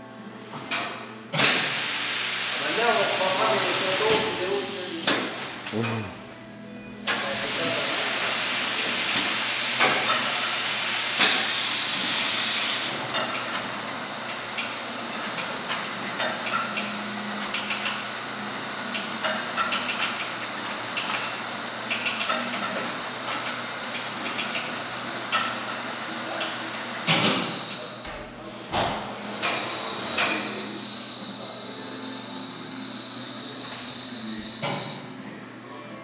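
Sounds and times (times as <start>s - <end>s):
loud hiss: 1.4s - 5.4s, 7.1s - 12.9s
conveyor rollers running: 1.4s - 6.4s, 7.0s - 36.0s.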